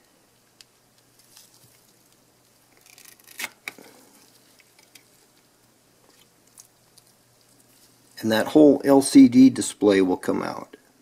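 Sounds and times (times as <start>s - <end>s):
rustle and scrape of handling: 0.4s - 8.5s.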